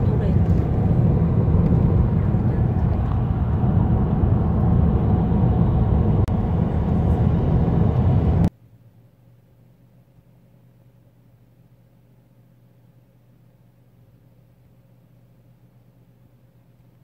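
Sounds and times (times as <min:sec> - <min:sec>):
car road and engine rumble: 0:00.0 - 0:08.5
faint hum: 0:00.0 - 0:17.0.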